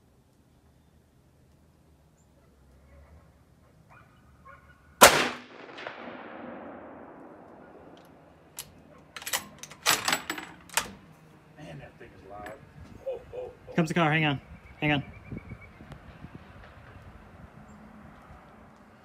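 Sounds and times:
rifle shot with echo: 5.0s - 8.5s
rifle bolt clacking: 7.4s - 11.0s.

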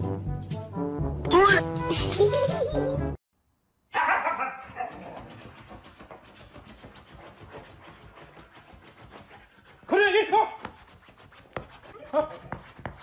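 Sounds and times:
dog panting: 4.6s - 9.9s.

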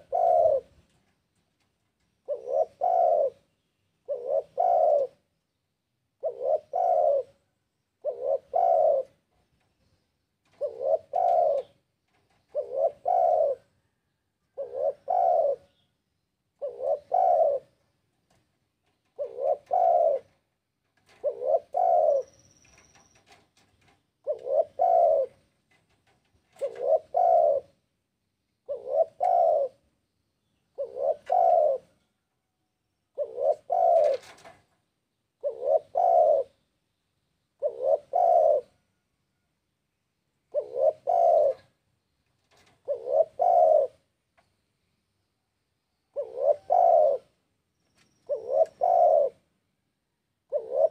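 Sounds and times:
dove cooing: 0.0s - 1.1s, 2.2s - 5.4s, 6.2s - 9.5s, 10.4s - 15.9s, 16.5s - 27.9s, 28.6s - 29.9s, 30.7s - 32.0s, 33.1s - 34.7s, 35.3s - 36.6s, 37.6s - 39.0s, 40.5s - 41.8s, 42.4s - 44.1s, 46.1s - 47.4s, 48.0s - 49.5s, 50.4s - 50.9s.

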